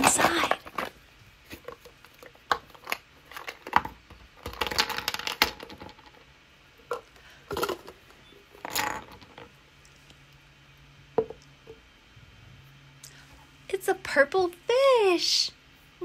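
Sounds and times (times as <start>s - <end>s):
contents rattling: 1.6s - 6.2s, 6.9s - 8.0s.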